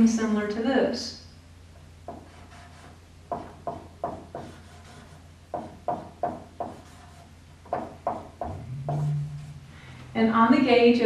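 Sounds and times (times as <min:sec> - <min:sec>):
low steady hum: 0:00.0 - 0:11.0
marker strokes on whiteboard: 0:02.1 - 0:08.2.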